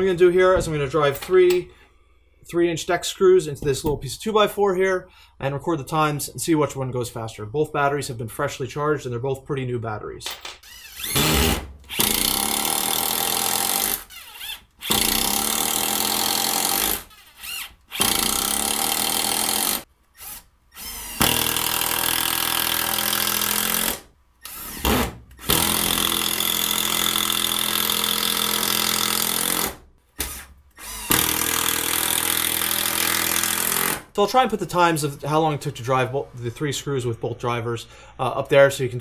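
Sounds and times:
impact driver hammering screws: 0:10.6 - 0:34.1.

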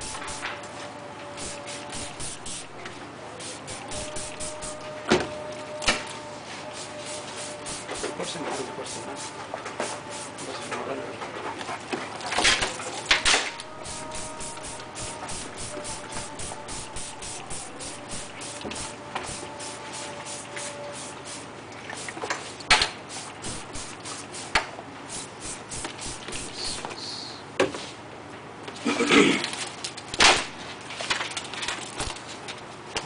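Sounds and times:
spray bottle squirting: 0:00.0 - 0:00.6, 0:01.4 - 0:04.8, 0:06.8 - 0:08.2, 0:12.4 - 0:21.4, 0:22.0 - 0:27.2, 0:30.1 - 0:30.6.

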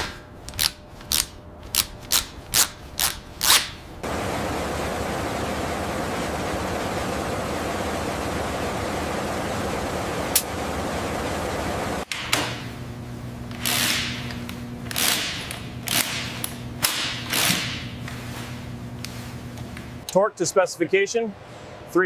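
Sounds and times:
faint hum: 0:02.9 - 0:16.8
steady workshop hiss: 0:04.0 - 0:12.0.

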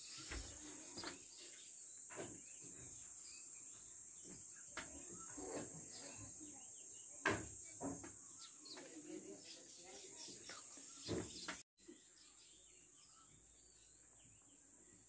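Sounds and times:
steady high-pitched hiss: 0:00.0 - 0:11.5.

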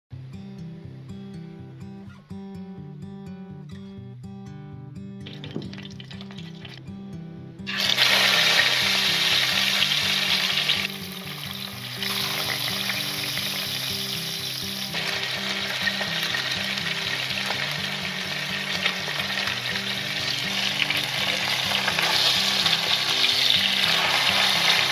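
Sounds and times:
fish sizzling in hot oil: 0:07.7 - 0:24.9.

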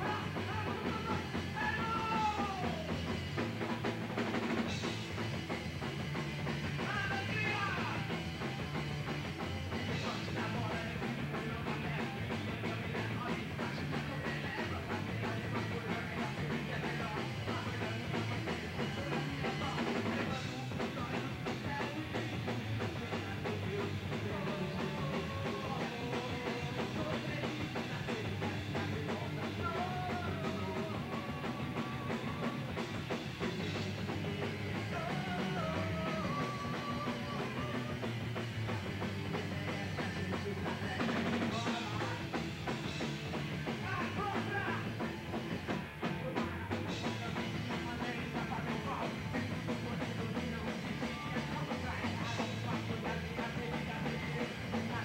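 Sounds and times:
singer shouting: 0:00.0 - 0:03.1, 0:06.8 - 0:08.3, 0:43.6 - 0:45.2
punk rock band playing live: 0:00.0 - 0:55.0.

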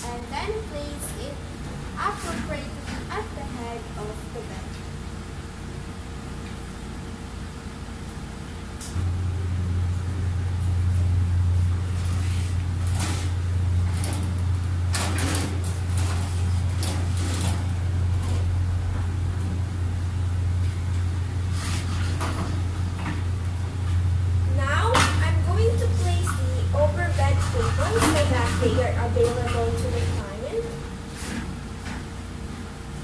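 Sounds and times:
steady low hum: 0:00.0 - 0:33.0
metal cart clacking and scraping: 0:26.0 - 0:30.2.

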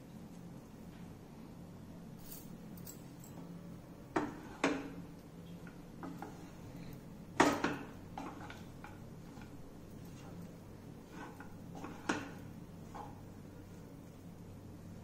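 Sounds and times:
spatula stirring food: 0:04.0 - 0:15.0.

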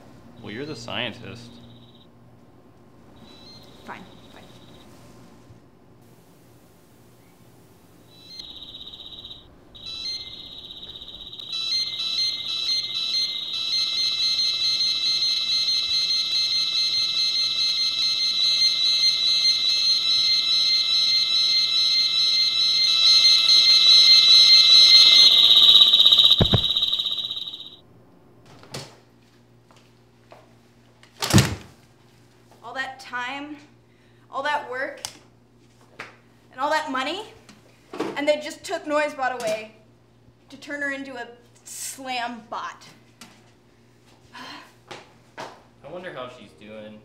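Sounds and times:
shrill electronic alarm tone: 0:01.6 - 0:02.1, 0:03.2 - 0:04.8, 0:08.1 - 0:27.8
loud thumps: 0:23.1 - 0:27.8.

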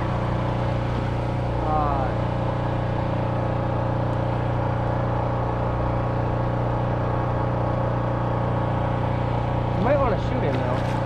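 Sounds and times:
small boat engine humming: 0:00.0 - 0:11.0.

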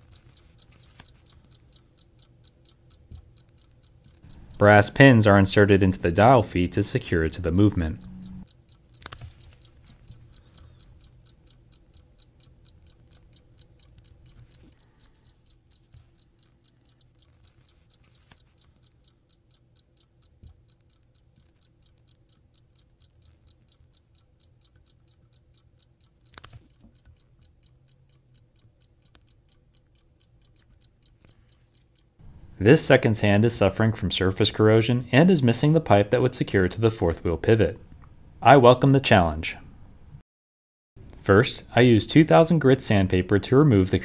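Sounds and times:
pocket watch ticking: 0:00.0 - 0:32.2.

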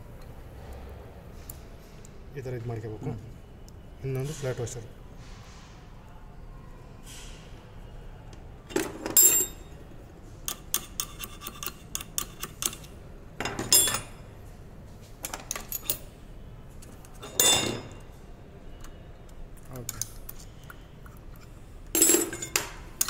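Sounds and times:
metal chain clinking: 0:09.2 - 0:09.6, 0:13.5 - 0:14.2, 0:22.0 - 0:22.6.

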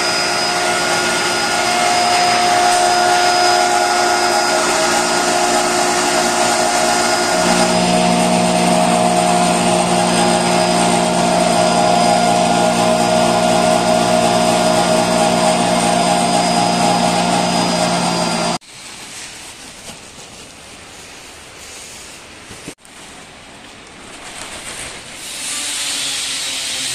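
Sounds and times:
hammer mill motor whine: 0:00.0 - 0:18.6
low hum: 0:00.0 - 0:18.6.

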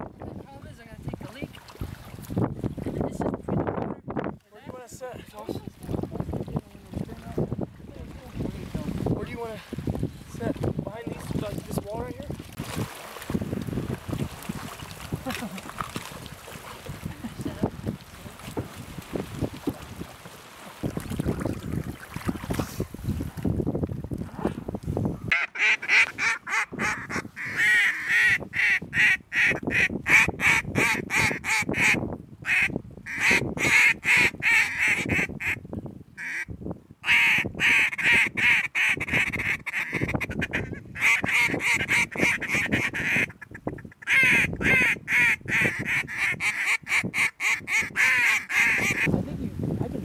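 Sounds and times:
wind buffeting microphone: 0:00.0 - 0:50.0
duck call quacks: 0:25.3 - 0:35.6, 0:36.2 - 0:49.1.

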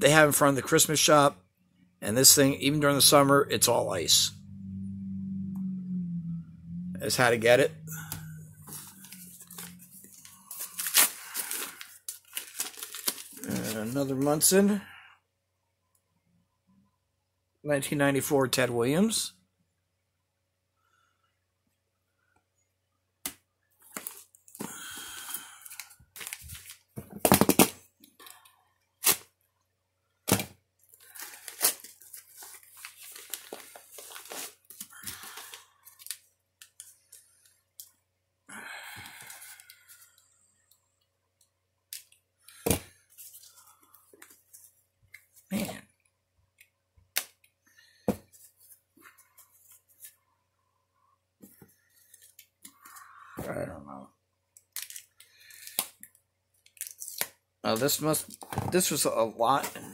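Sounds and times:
paper and tape tearing: 0:29.0 - 0:29.3.

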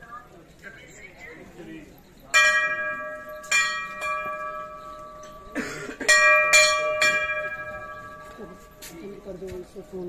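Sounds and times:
brass bell ringing: 0:02.2 - 0:09.4.

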